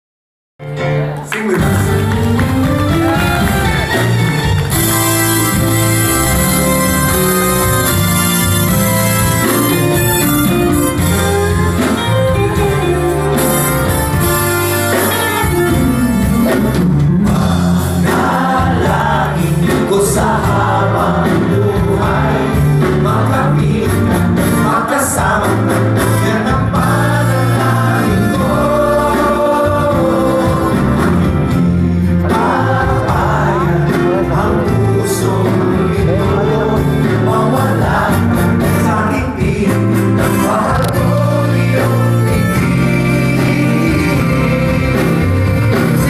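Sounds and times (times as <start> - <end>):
live pop band playing: 0.6 - 46.0
men singing: 16.6 - 46.0.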